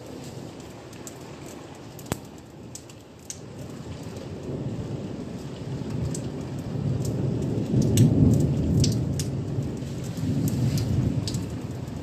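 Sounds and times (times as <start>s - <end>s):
raindrops tapping: 0.0s - 12.0s
thunder rumbling: 3.5s - 12.0s.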